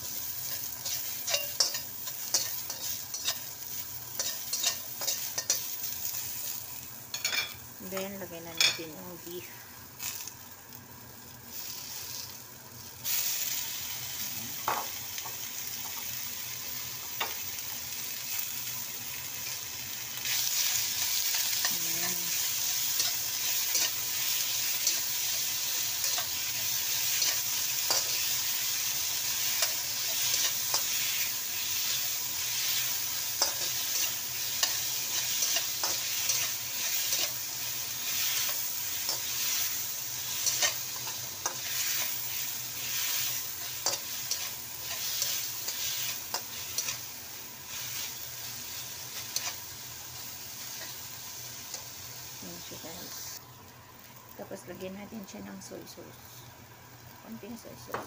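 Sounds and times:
meat sizzling in hot oil: 0.0s - 58.0s
spatula scraping and tapping pan: 0.5s - 3.5s, 4.2s - 5.7s.

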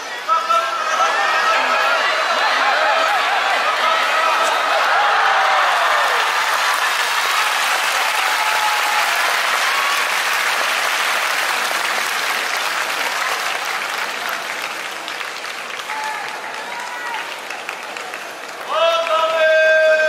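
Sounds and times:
crowd shouts: 0.0s - 10.7s, 15.8s - 17.5s, 18.7s - 20.0s
crowd applauding: 0.9s - 20.0s.

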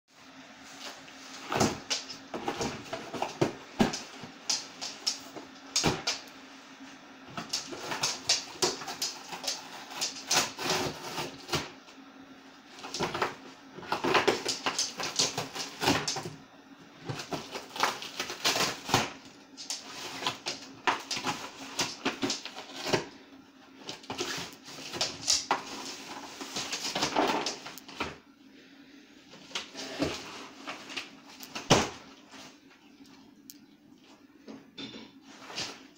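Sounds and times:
dog tearing cardboard box: 7.3s - 11.7s, 12.8s - 16.3s, 17.1s - 23.0s.

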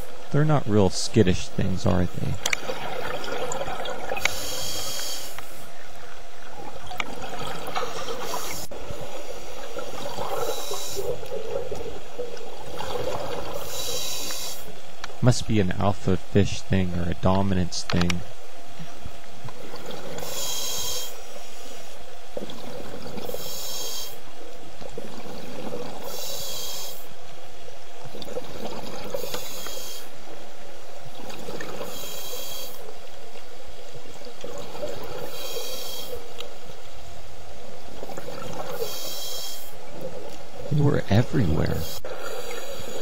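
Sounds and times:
underwater bubbling: 2.0s - 15.2s, 18.6s - 43.0s
regulator breathing hiss: 4.2s - 5.7s, 10.3s - 11.3s, 13.6s - 14.8s, 20.2s - 22.0s, 23.2s - 24.3s, 26.0s - 27.2s, 29.1s - 30.2s, 31.8s - 32.9s, 35.2s - 36.3s, 38.7s - 39.8s, 41.7s - 43.0s.

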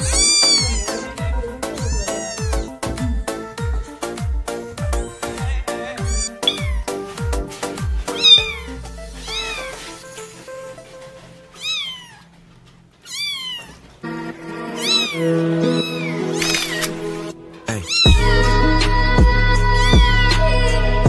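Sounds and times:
kitten meowing: 0.0s - 4.0s, 4.9s - 6.9s, 8.1s - 10.0s, 11.6s - 12.3s, 13.0s - 13.8s, 14.8s - 17.0s, 17.8s - 18.5s, 19.8s - 20.3s
background music: 0.0s - 11.6s, 14.0s - 21.0s.

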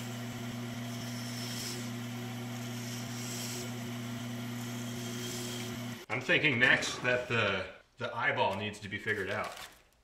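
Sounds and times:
bandsaw humming: 0.0s - 6.2s.

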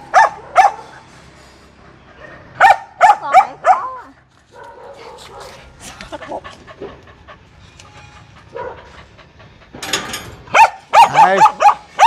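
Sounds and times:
dog panting: 4.2s - 9.8s
dog crying: 10.5s - 12.0s.

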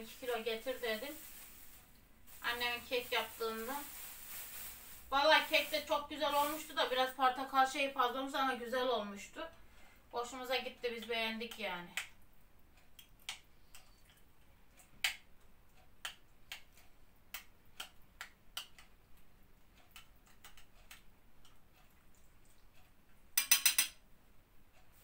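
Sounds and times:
spoon clicking against glass bowl: 23.4s - 24.0s.

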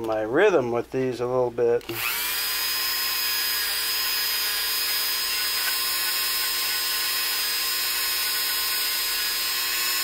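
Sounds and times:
rotary tool whining: 1.9s - 10.0s.

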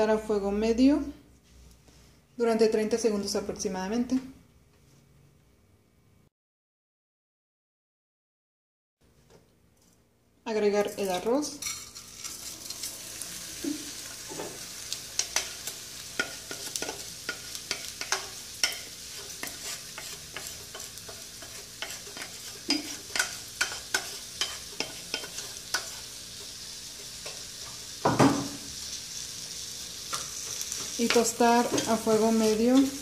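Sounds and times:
rice sizzling in hot oil: 10.9s - 33.0s.

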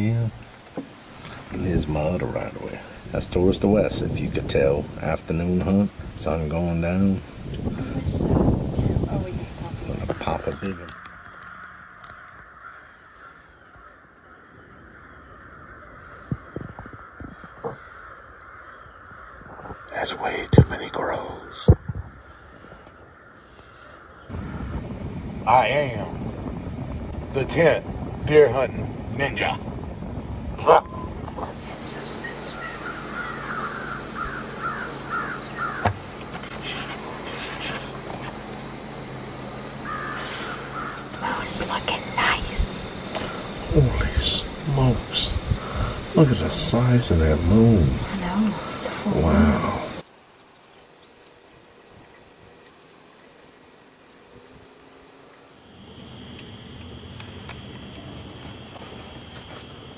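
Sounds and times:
crows cawing in the distance: 10.0s - 19.9s, 22.1s - 24.8s, 31.8s - 36.4s, 38.7s - 43.7s, 45.4s - 46.2s, 48.0s - 50.0s
scratchy rubbing: 36.0s - 38.4s.

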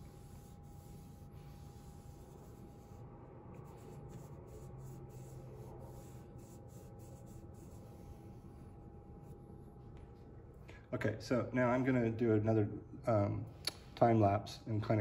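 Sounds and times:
fingertip rubbing on paper: 0.0s - 9.4s.

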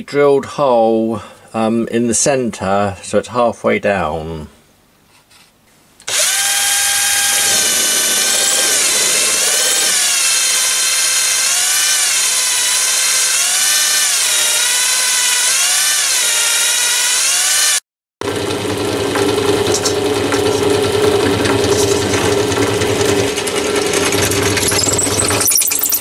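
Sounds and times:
drill motor whining: 6.0s - 26.0s.

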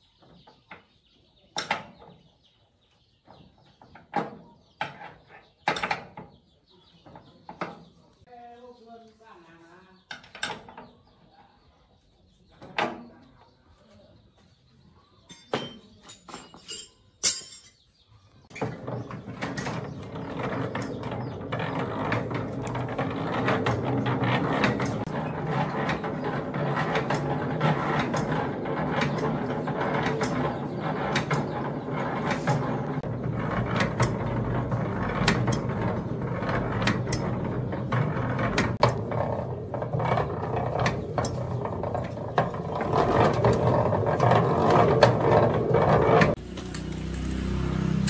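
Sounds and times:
machine with rapid clatter: 18.6s - 46.4s.

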